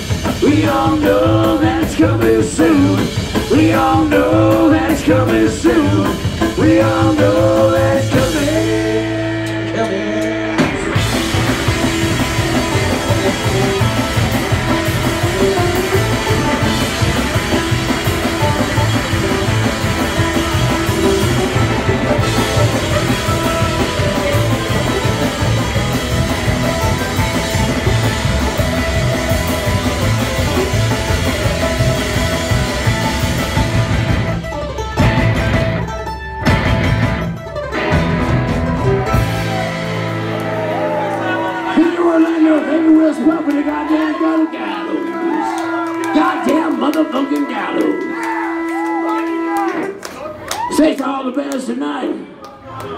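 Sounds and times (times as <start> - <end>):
rock band playing: 0.0 - 50.8
person singing: 0.1 - 11.2
mandolin: 11.3 - 39.6.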